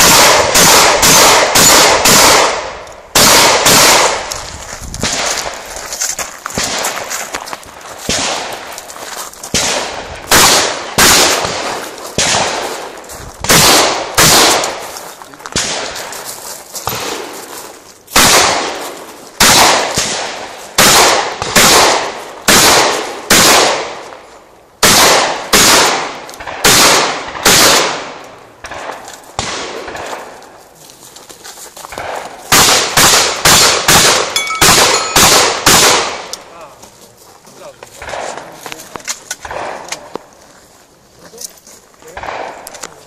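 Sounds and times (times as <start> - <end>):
shotgun shots with echo: 0.0 - 4.3, 5.0 - 5.5, 6.6 - 7.1, 8.1 - 8.6, 9.5 - 12.8, 13.4 - 14.8, 15.5 - 16.1, 16.9 - 17.4, 18.1 - 18.8, 19.4 - 24.0, 24.8 - 30.4, 31.9 - 36.3, 38.0 - 38.4, 39.4 - 40.1, 42.1 - 42.7.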